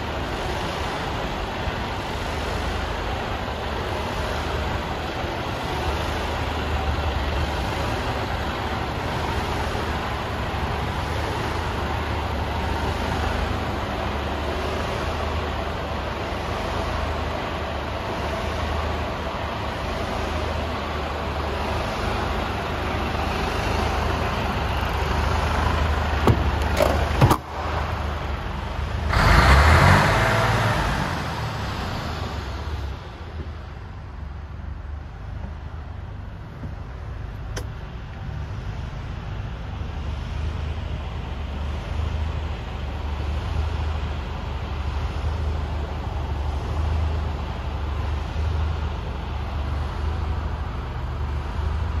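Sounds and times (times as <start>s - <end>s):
diesel engine idling: 0.0s - 52.0s
door latch clicks: 26.2s - 27.4s
door opening handling noise: 26.2s - 27.5s.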